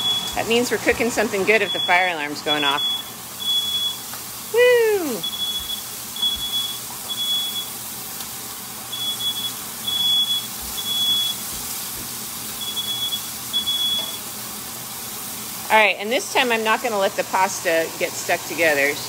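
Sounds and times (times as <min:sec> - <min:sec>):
smoke alarm beeping: 0:00.0 - 0:00.6, 0:01.4 - 0:04.1, 0:05.1 - 0:07.8, 0:08.9 - 0:11.5, 0:12.6 - 0:14.2
person exclaiming woo: 0:04.5 - 0:05.3.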